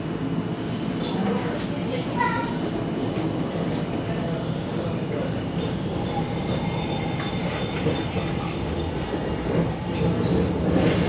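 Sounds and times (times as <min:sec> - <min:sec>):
tram wheels rumbling on rails: 0:00.0 - 0:11.0
faint high wheel squeal: 0:05.8 - 0:09.4.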